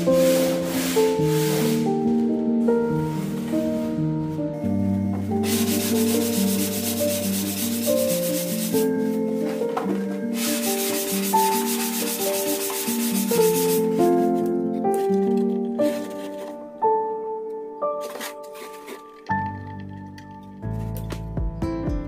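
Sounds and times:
background music: 0.0 - 22.0
sanding block rubbing foam: 5.4 - 8.9, 10.4 - 14.0.

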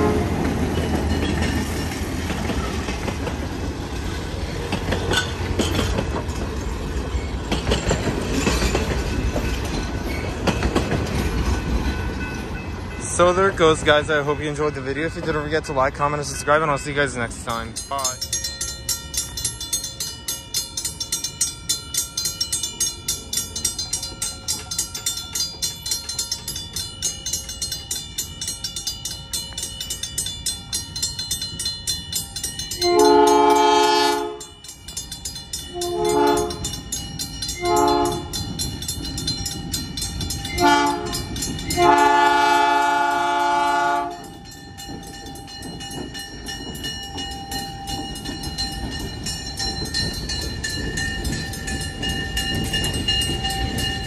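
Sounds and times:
locomotive air horn: 0.0 - 0.4, 32.8 - 34.4, 35.7 - 36.6, 37.6 - 38.3, 40.6 - 41.1, 41.8 - 44.3
train wheels clacking: 0.0 - 54.0.

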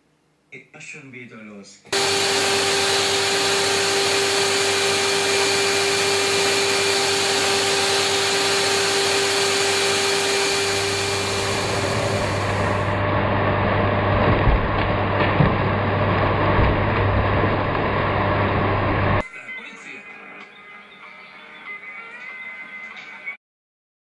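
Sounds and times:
vacuum cleaner whine: 1.9 - 14.1
low vacuum hum: 2.0 - 19.2.

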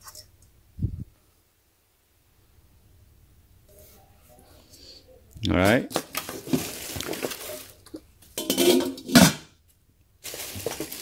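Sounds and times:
pots and pans knocking: 8.4 - 9.5.

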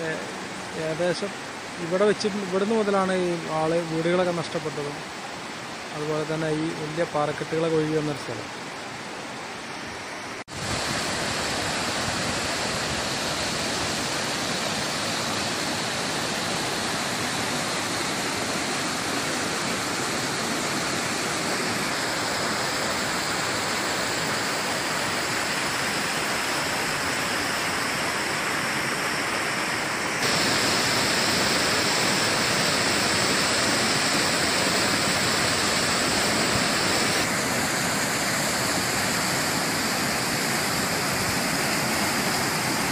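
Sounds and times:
stream rushing over rocks: 0.0 - 42.9
waterfall pouring: 30.2 - 42.9.

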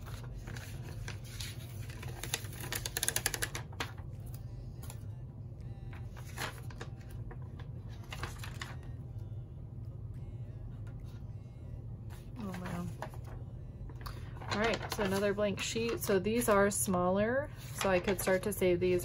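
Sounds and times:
paper sticker sheets rustling: 0.0 - 5.0, 5.9 - 8.9, 12.1 - 13.4, 14.0 - 19.0
steady low hum: 0.0 - 19.0.

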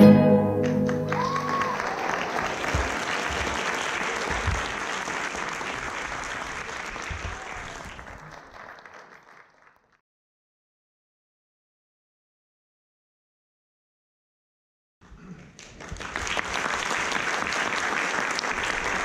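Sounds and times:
audience applauding: 0.6 - 10.0, 15.4 - 19.0.

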